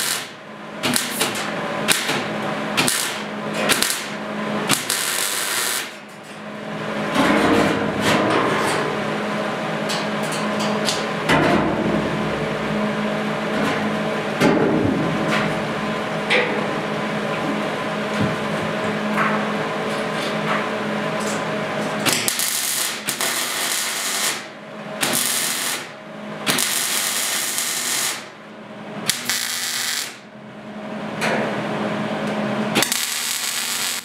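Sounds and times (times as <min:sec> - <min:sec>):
welder arc crackling: 0:00.0 - 0:01.2, 0:02.8 - 0:06.0, 0:22.0 - 0:28.3, 0:29.1 - 0:30.2, 0:32.8 - 0:34.0
steady hum: 0:00.0 - 0:34.0.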